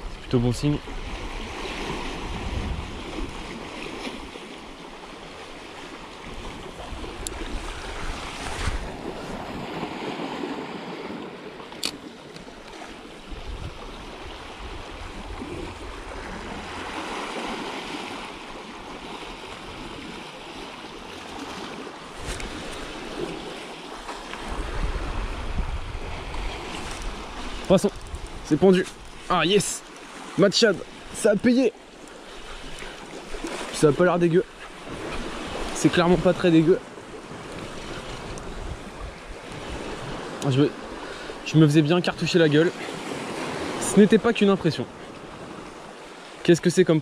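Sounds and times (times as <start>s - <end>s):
waves breaking over rocks: 0.0s - 47.0s
wind buffeting microphone: 0.9s - 3.6s, 6.3s - 10.9s, 13.2s - 17.0s, 24.4s - 29.6s, 37.1s - 41.1s
sharp click: 11.7s - 12.0s.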